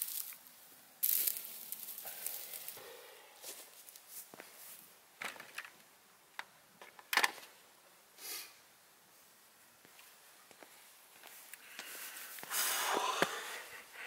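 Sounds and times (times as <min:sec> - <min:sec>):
bicycle clicks and knocks: 0:05.2 - 0:05.8.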